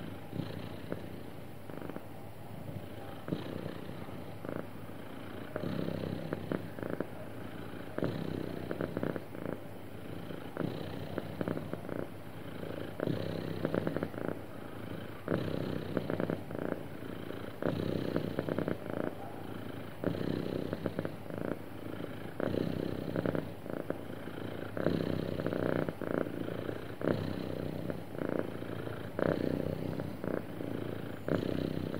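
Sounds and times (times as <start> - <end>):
cat purring: 0.0 - 31.9.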